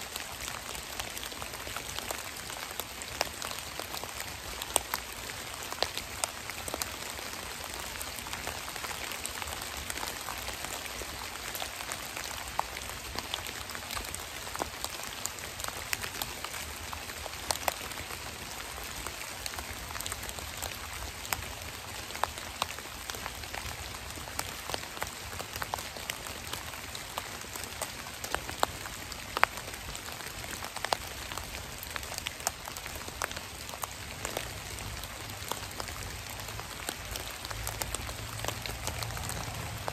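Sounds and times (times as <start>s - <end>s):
rain hissing on leaf litter: 0.0s - 39.9s
raindrops ticking on dead leaves: 0.0s - 39.9s.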